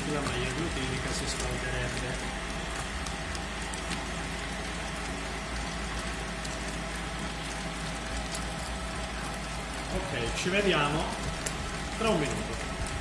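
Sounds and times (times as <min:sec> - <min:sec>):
dough mixer motor humming: 0:00.0 - 0:13.0.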